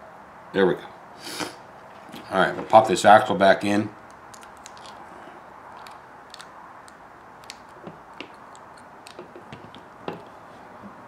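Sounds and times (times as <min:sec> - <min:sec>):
small plastic and metal parts clicking: 0:04.1 - 0:05.0, 0:05.8 - 0:09.8.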